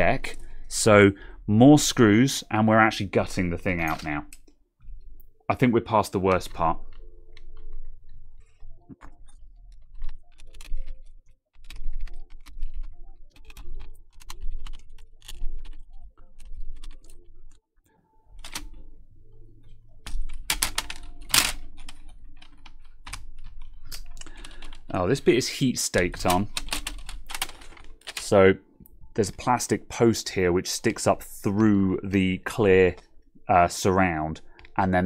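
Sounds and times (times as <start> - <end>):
plastic keyboard parts clicking: 6.3 - 17.6, 18.4 - 18.8, 19.7 - 28.4.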